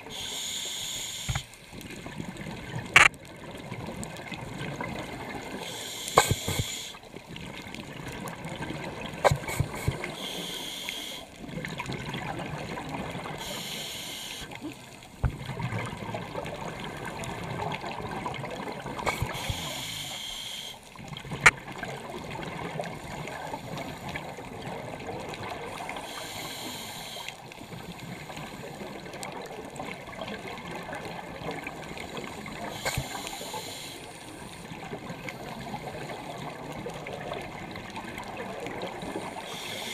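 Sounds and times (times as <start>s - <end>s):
rushing water noise: 0.0s - 27.4s.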